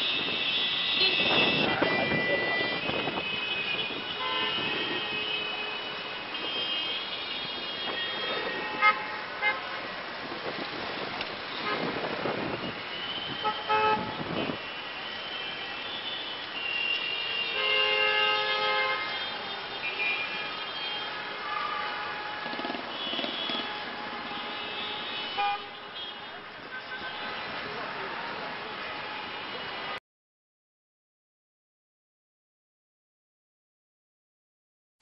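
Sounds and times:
car horns honking: 0.0 - 9.7, 12.6 - 27.6
rumble of engines: 0.1 - 17.2, 21.9 - 25.4.

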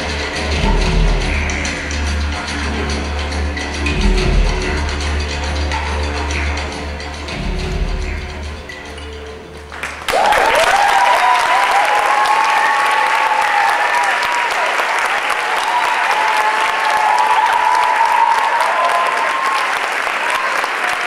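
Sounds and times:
audience applause: 9.7 - 21.0
whoops and cheers: 10.1 - 21.0.

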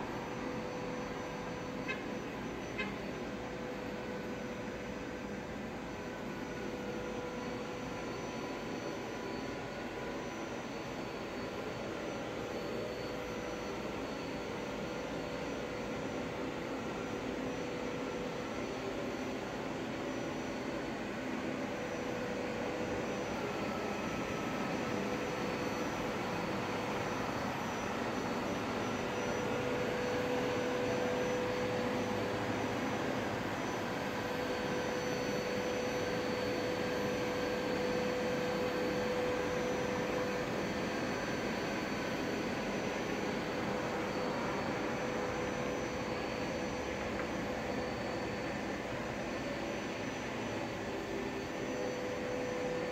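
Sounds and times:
distant jet aircraft drone: 0.0 - 52.9.

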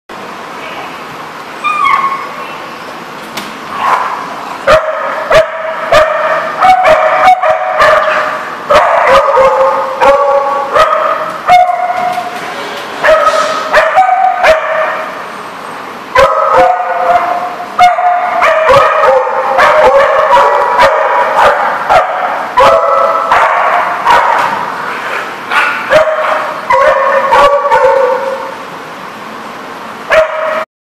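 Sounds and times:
dogs barking and yipping: 1.6 - 2.4, 3.7 - 12.4, 13.0 - 15.3, 16.1 - 28.6, 30.1 - 30.6.

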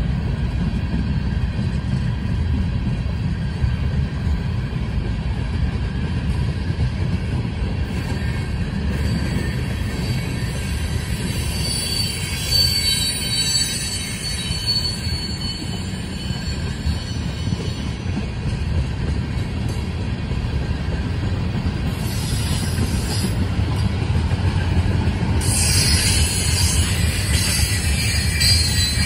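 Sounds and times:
train wheels rumbling on rails: 0.0 - 29.0
high-pitched wheel squeal: 8.1 - 17.8, 25.4 - 29.0.

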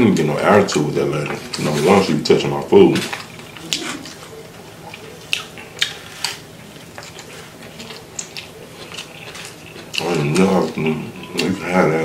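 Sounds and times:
chewing: 0.2 - 12.0.

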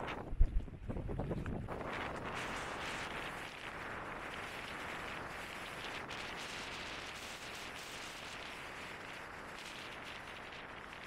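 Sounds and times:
strong wind rushing: 0.0 - 4.0.

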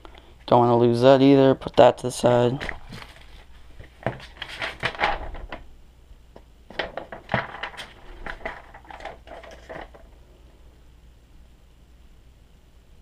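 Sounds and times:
light clattering of packaging: 2.6 - 5.6, 6.7 - 10.2
paper rustling: 2.6 - 5.6, 6.7 - 10.2.

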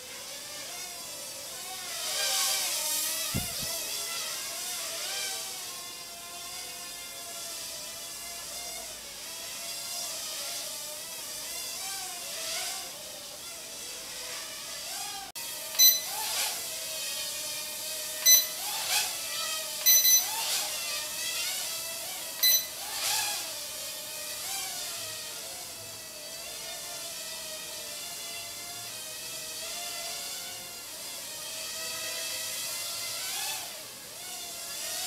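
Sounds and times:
toy drone propellers whirring: 0.0 - 35.0
sharp electronic beeps: 15.8 - 16.2, 18.2 - 18.6, 19.8 - 20.3, 22.4 - 22.8.

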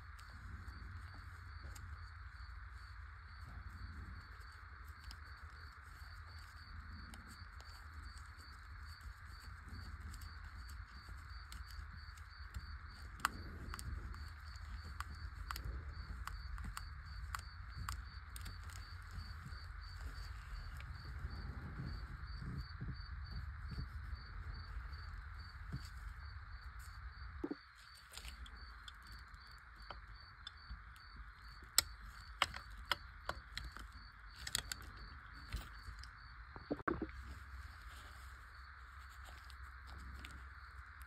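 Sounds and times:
background hum: 0.0 - 41.0.

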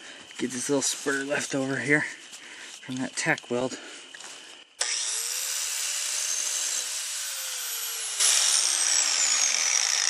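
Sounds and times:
angle grinder grinding metal: 4.8 - 10.0.

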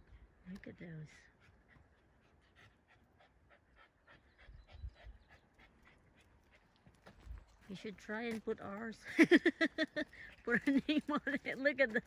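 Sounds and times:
dog panting: 1.2 - 7.3.

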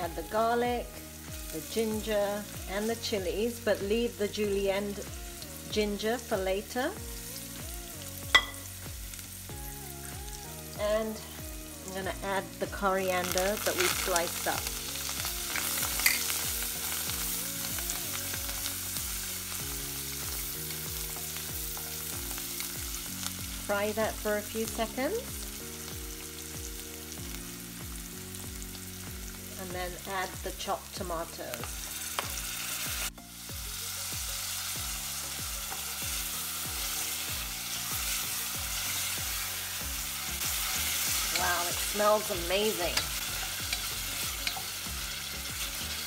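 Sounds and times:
oil sizzling in a pan: 0.0 - 46.0
background music with deep beat: 4.5 - 12.8, 25.2 - 29.6.

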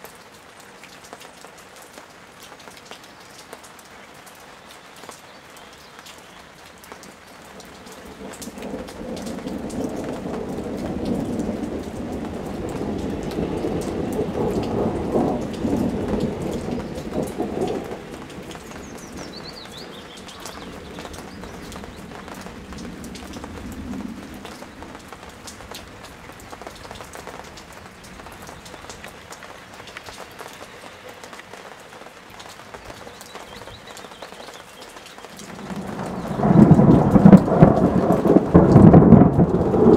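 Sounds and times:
rain hissing and pattering: 0.0 - 39.9
rolling thunder: 7.8 - 27.2, 35.4 - 39.9.

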